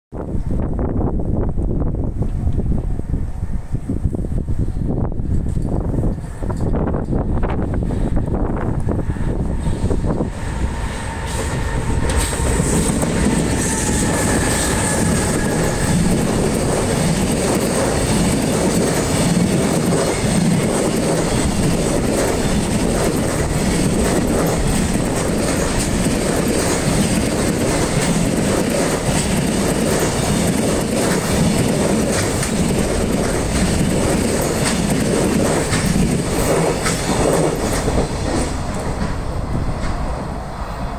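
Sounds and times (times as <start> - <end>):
train rumble: 0.2 - 40.9
high whine: 5.0 - 17.9
train wheels clattering: 9.5 - 40.3.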